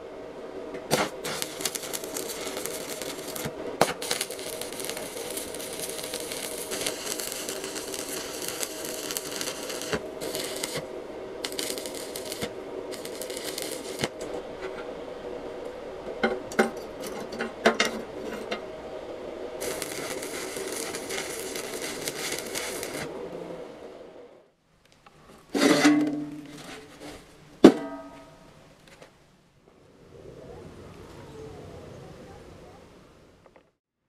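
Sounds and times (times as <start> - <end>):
steady hum: 0.0 - 30.9
welding arc crackling: 0.8 - 14.8, 19.6 - 23.2.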